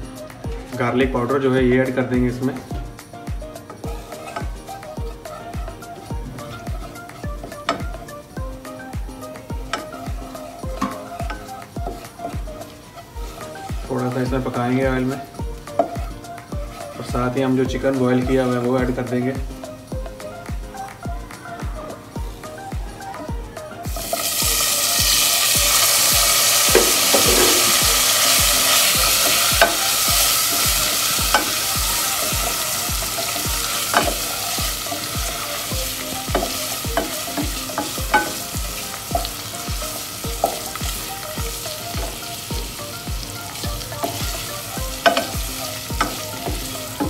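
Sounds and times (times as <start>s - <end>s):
chicken sizzling in oil: 3.8s - 19.4s, 23.8s - 47.0s
spatula scraping a pan: 4.0s - 4.8s.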